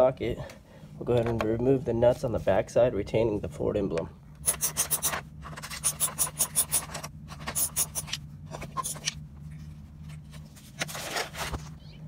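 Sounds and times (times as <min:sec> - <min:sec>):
ratchet wrench clicking: 0:04.4 - 0:05.2, 0:05.8 - 0:07.0, 0:07.6 - 0:08.1.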